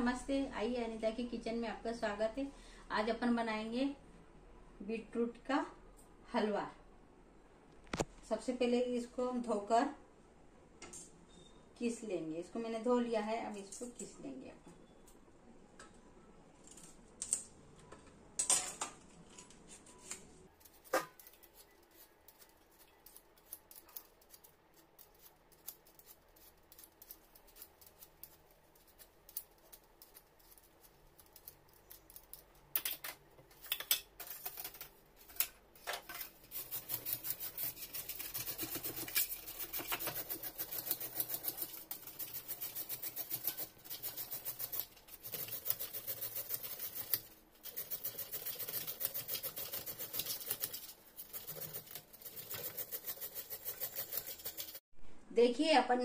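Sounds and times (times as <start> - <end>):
beetroot grating on grater: 20.6 - 32.5, 36.2 - 54.8.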